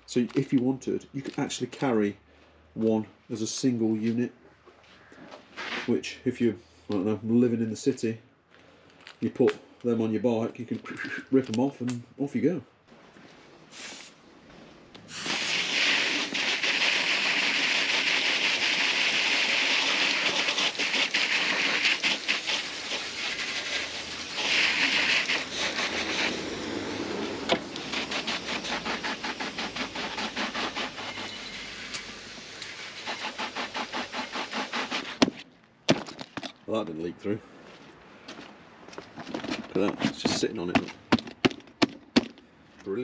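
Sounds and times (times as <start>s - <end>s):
hose spray hissing and splashing: 13.7s - 14.2s, 15.0s - 35.4s.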